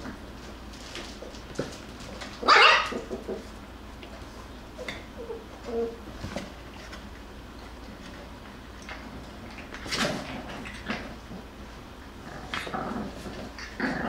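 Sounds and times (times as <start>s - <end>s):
puppies scrabbling in cardboard box: 0.0s - 3.6s, 5.6s - 8.6s, 9.2s - 11.8s.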